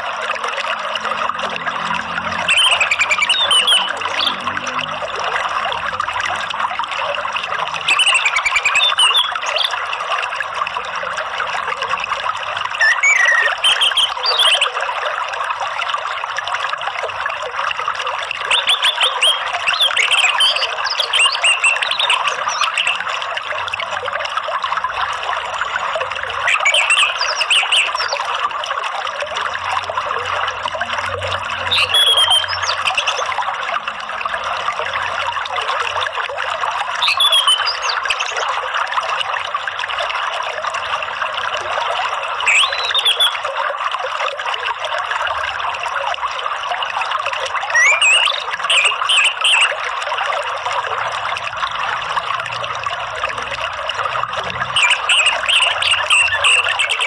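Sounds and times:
water trickling: 0.0 - 57.0
bird chirping and whistling: 2.4 - 4.4, 7.9 - 9.7, 12.8 - 14.7, 18.5 - 23.0, 26.5 - 28.2, 31.7 - 33.3, 37.0 - 38.3, 42.5 - 43.4, 47.7 - 49.7, 54.8 - 57.0.

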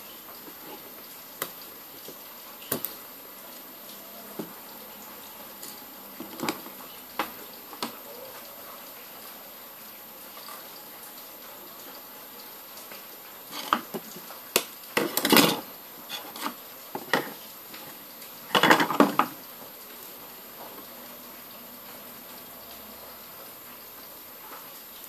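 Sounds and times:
small tools clattering on wooden table: 15.0 - 17.3, 18.5 - 19.3.

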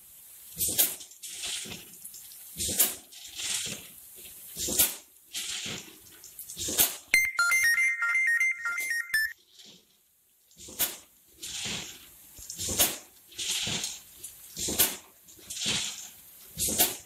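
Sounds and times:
phone ringtone melody: 7.2 - 9.3.

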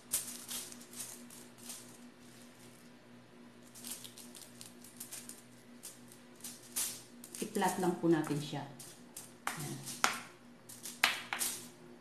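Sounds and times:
aluminum foil crinkling: 0.0 - 11.7.

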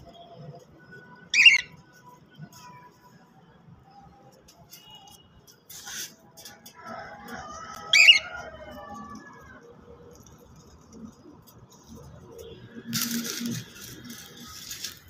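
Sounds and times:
cockatiel calling: 1.3 - 1.7, 7.9 - 8.3.

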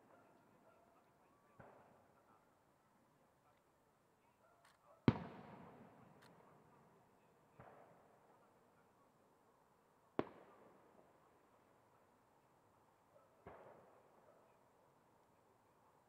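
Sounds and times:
rolling echo: 5.1 - 6.7.

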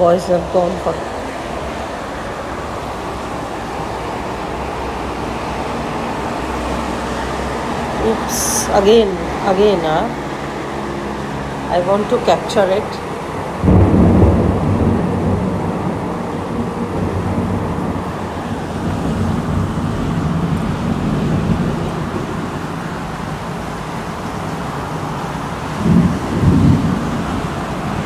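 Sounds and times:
thunder rumbling: 13.2 - 28.0.

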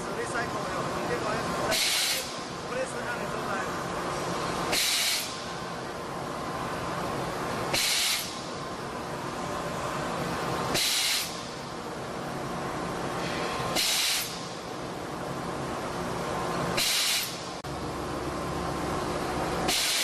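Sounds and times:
machine mechanical hum: 0.0 - 20.0
short sharp hiss: 4.7 - 5.4, 7.7 - 8.4, 10.7 - 11.4, 13.2 - 14.5, 16.8 - 17.5, 19.7 - 20.0.

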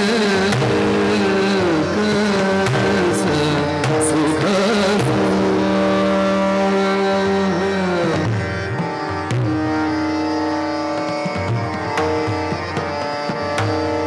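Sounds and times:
man singing: 0.0 - 8.5
harmonium: 0.0 - 14.0
tabla drums: 0.0 - 14.0
tanpura drone: 0.0 - 14.0.

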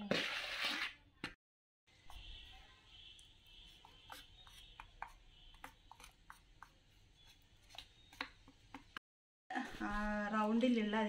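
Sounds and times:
spoon scraping wet cement: 0.0 - 1.1, 2.1 - 8.4.

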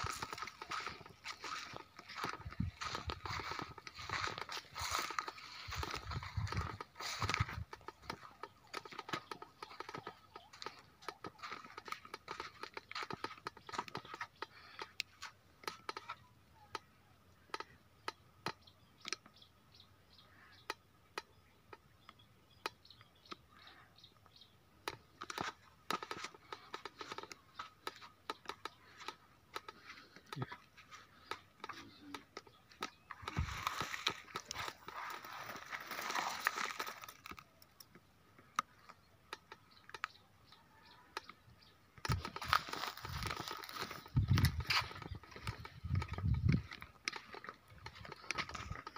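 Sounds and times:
footsteps crunching on rock: 0.0 - 15.8, 24.9 - 37.5, 42.0 - 48.9
rustling: 30.9 - 37.4.

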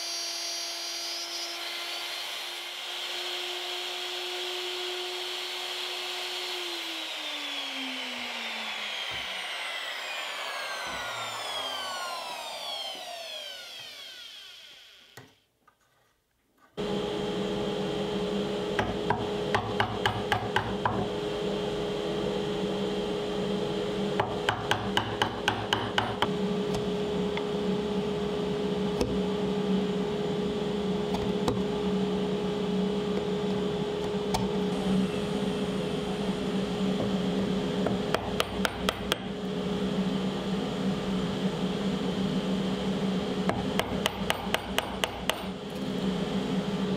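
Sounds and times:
router whine winding down: 0.0 - 15.4, 16.8 - 19.8, 20.8 - 46.9
steady hum: 16.8 - 46.9.

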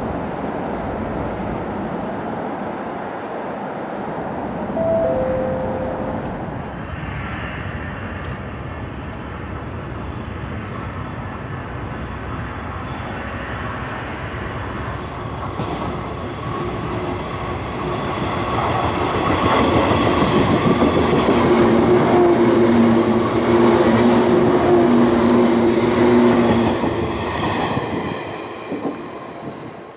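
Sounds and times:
two steady ringing tones: 4.8 - 6.2
train wheels rumbling on rail: 6.0 - 29.9.

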